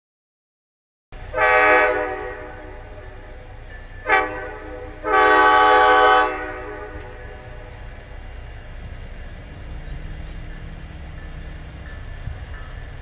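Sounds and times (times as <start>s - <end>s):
locomotive horn blasts: 1.2s - 7.9s
steady low rumble: 6.2s - 13.0s.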